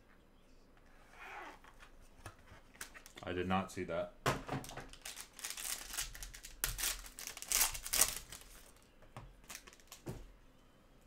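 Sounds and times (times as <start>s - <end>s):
foil wrapper crinkling: 4.6s - 10.1s.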